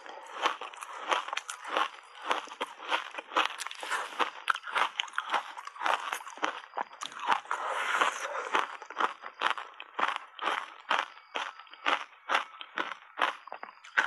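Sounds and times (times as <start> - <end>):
ice being chewed: 0.0 - 14.0.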